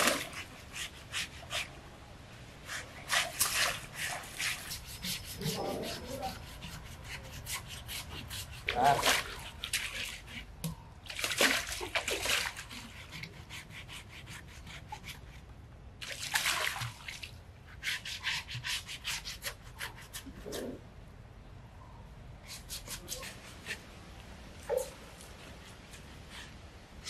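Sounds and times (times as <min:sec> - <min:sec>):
coconut husk scrubbing wet skin: 0:02.6 - 0:10.6.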